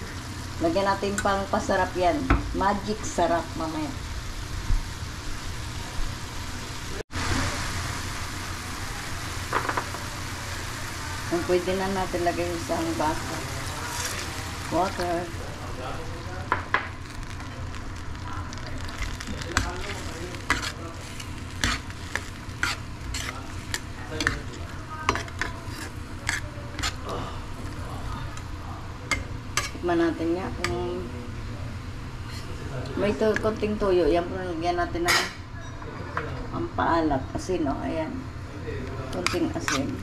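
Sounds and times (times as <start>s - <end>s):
vegetables sizzling in skillet: 0.0s - 35.5s, 36.6s - 40.0s
steady low hum: 7.8s - 35.6s
utensil scraping metal pan: 21.6s - 27.0s.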